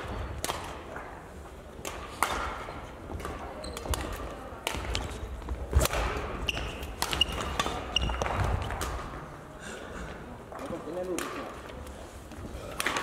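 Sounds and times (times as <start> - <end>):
racket striking shuttlecock: 1.8 - 9.0
sneaker squeaks: 3.5 - 4.2, 6.3 - 8.6.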